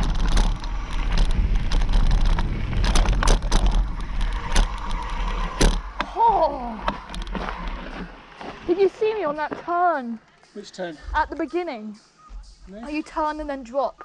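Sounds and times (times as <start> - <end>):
wind on microphone: 0.0 - 7.9
bike clicking and rattling: 0.0 - 10.1
tyres rolling over gravel: 0.0 - 10.1
steady whine: 0.0 - 14.0.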